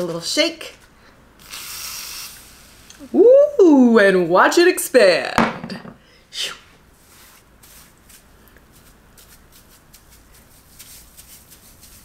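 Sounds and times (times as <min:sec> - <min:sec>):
brief hiss: 0:01.4 - 0:03.0
hands rubbing and squishing hair: 0:07.0 - 0:12.0.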